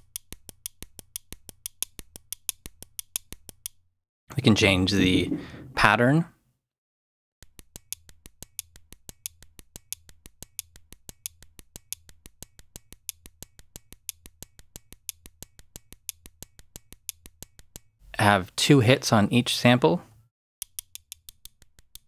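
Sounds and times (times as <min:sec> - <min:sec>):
rhythmic pen clicks and snaps: 0:00.0 - 0:03.8, 0:07.4 - 0:18.0, 0:20.6 - 0:22.0.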